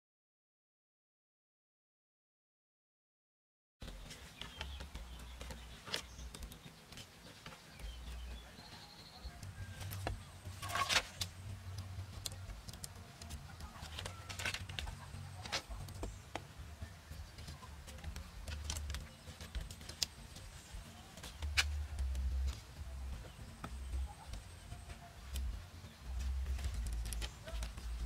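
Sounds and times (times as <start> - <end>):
bamboo poles knocking together: 3.8 - 8.2, 9.4 - 16.6, 17.2 - 28.0.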